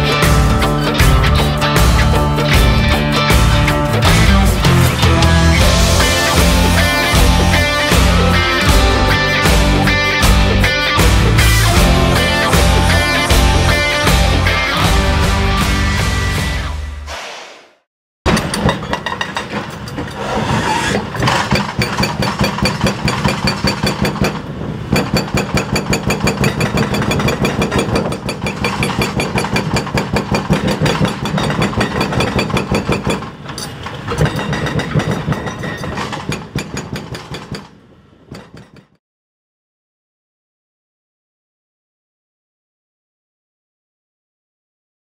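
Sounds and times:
diesel engines running: 0:00.0 - 0:16.8
hydraulic breaker hammering concrete: 0:21.0 - 0:33.4, 0:34.1 - 0:38.8.

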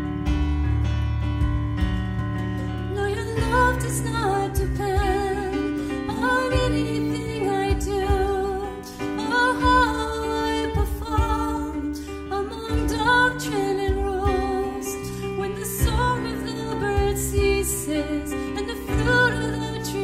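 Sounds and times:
drum kit hits: 0:00.0 - 0:02.7
electric bass notes: 0:00.0 - 0:20.0
live band playing worship song: 0:00.0 - 0:20.0.

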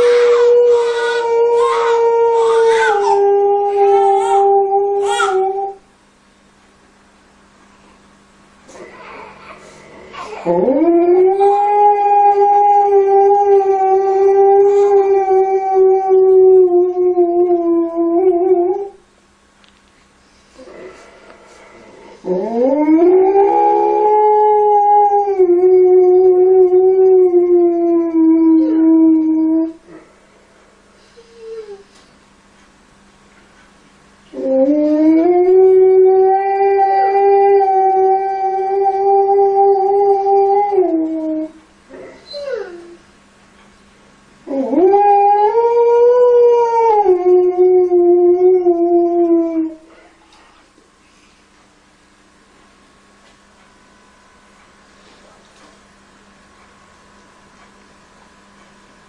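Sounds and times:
dog howling: 0:00.0 - 0:05.8, 0:08.8 - 0:19.0, 0:22.2 - 0:29.8, 0:34.3 - 0:43.0, 0:44.5 - 0:49.9.

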